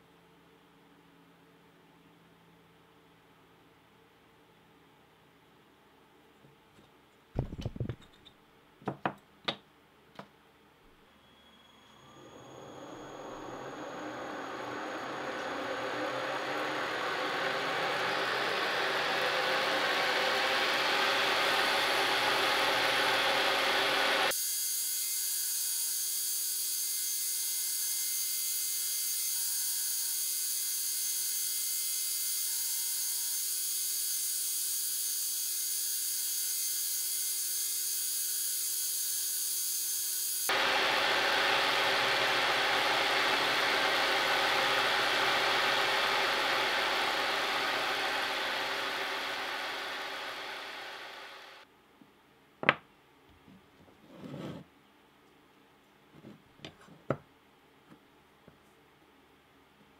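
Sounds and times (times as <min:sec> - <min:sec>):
thin high whine: 0:10.8 - 0:24.3, 0:40.5 - 0:51.6
milling machine cutting wood: 0:11.7 - 0:24.3, 0:40.5 - 0:51.6.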